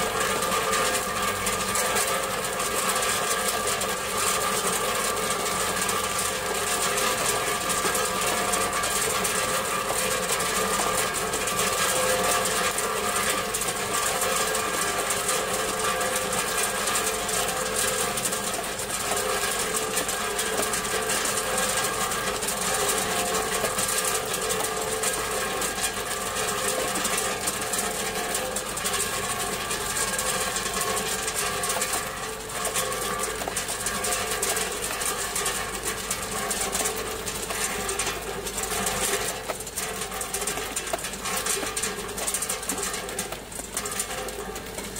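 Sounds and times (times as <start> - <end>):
ice clattering into plastic basin: 30.2 - 44.9.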